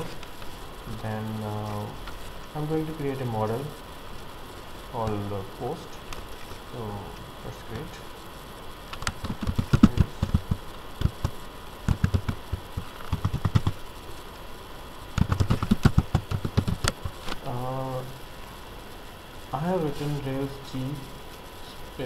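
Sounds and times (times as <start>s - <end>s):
keyboard key clicks: 15.2s - 17.0s.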